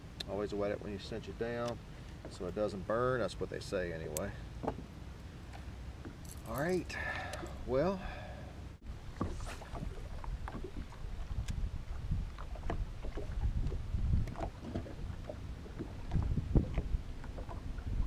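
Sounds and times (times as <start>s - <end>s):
waves lapping against hull: 5.3s - 18.0s
wind on microphone: 8.9s - 18.0s.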